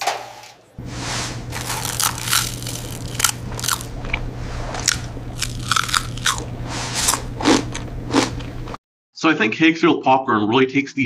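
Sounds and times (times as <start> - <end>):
steady low hum: 0.8 - 8.8
popcorn crunching: 1.5 - 8.8.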